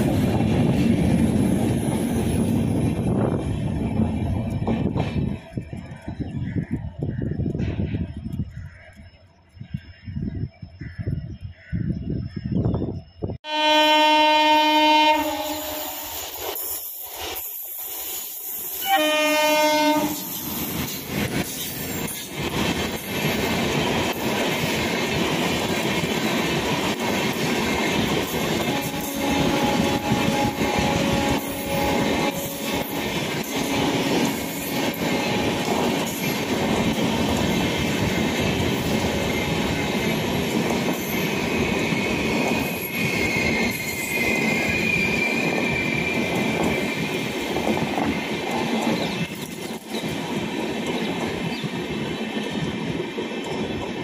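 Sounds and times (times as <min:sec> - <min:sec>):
train horn blast: 0:13.4 - 0:16.1, 0:18.8 - 0:20.4, 0:28.6 - 0:36.0
train wheels clattering on rails: 0:15.2 - 0:54.0
high wheel squeal: 0:40.9 - 0:47.1.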